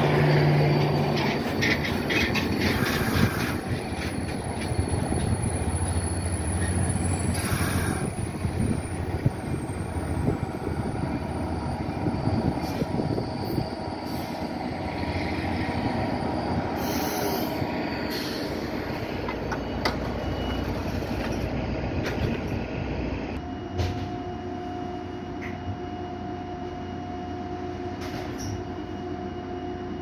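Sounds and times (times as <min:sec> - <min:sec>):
stopped train humming: 0:00.0 - 0:30.0
train rumbling to a stop: 0:00.0 - 0:30.0.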